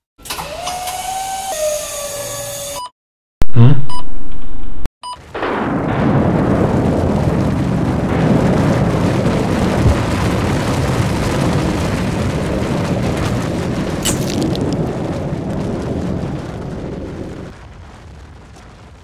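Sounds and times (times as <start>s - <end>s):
low rumbling roar: 5.4s - 18.6s.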